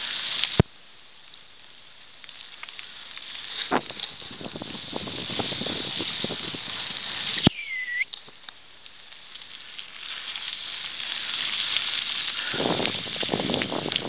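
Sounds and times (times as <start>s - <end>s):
tyres on wet gravel: 0.0s - 14.0s
wind on microphone: 3.7s - 8.0s, 12.4s - 14.0s
short squeak: 7.4s - 8.0s.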